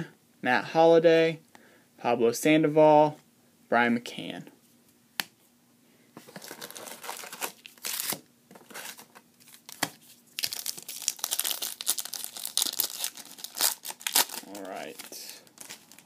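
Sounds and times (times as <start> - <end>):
foil wrappers crinkling: 6.3 - 16.0
foil pack tearing: 6.4 - 9.8, 10.4 - 16.0.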